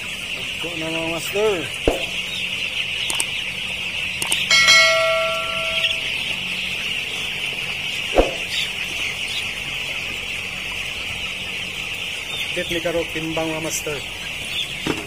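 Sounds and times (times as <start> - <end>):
chicks peeping: 0.0 - 15.0
bell-like notification ding: 4.5 - 6.2.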